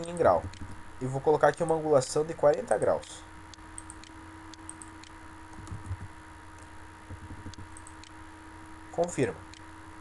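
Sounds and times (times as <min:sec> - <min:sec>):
keyboard typing: 0:00.0 - 0:00.8, 0:03.8 - 0:06.1, 0:07.1 - 0:08.1
low electrical hum: 0:00.0 - 0:10.0
soft low thuds: 0:07.0 - 0:07.7.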